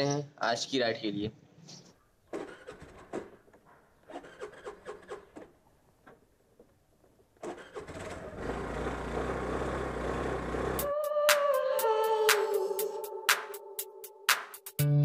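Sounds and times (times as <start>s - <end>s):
motorcycle engine starting and idling: 2.2s - 11.0s.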